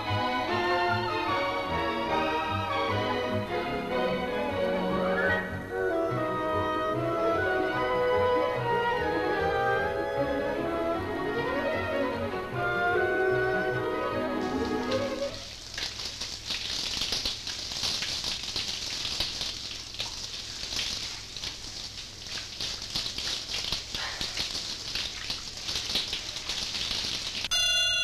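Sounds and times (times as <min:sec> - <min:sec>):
string music: 0:00.0 - 0:15.4
shower water spraying: 0:13.6 - 0:27.5.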